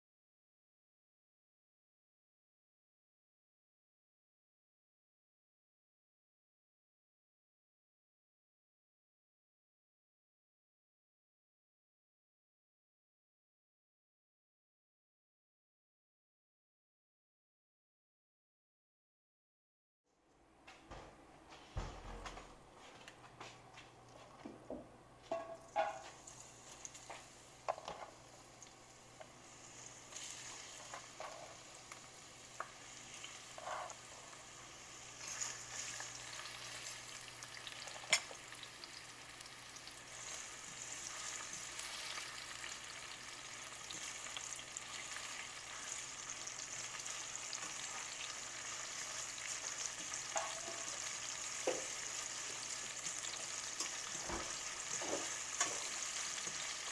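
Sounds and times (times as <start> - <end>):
vegetables sizzling in oil: 25.3 - 56.9.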